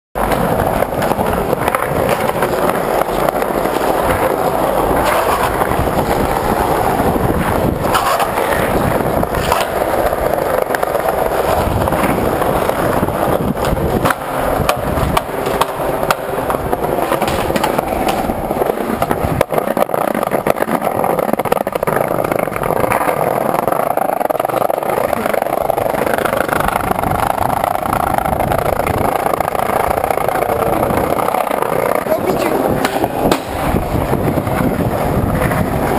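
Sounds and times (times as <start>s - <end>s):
skateboard wheels rolling: 0.2s - 35.9s
sharp knocks: 32.8s - 33.6s.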